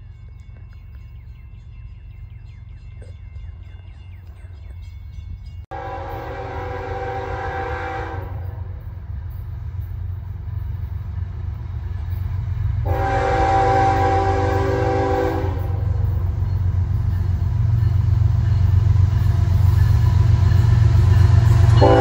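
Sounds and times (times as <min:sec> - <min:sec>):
train rumble: 0:00.0 - 0:22.0
train horn chord: 0:05.7 - 0:08.9, 0:12.8 - 0:16.2, 0:21.4 - 0:22.0.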